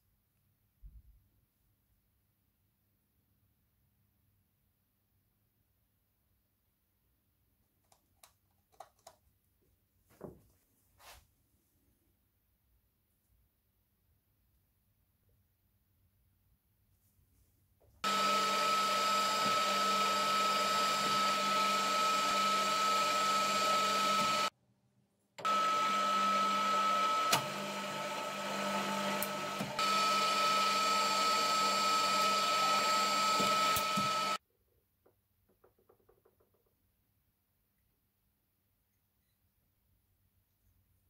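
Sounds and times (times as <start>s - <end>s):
drill press whining: 18.0s - 24.5s, 25.4s - 34.4s.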